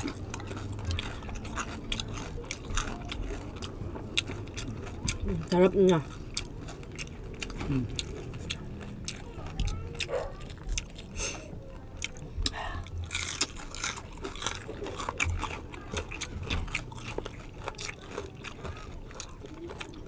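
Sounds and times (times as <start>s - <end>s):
crunching and chewing: 0.0s - 20.0s.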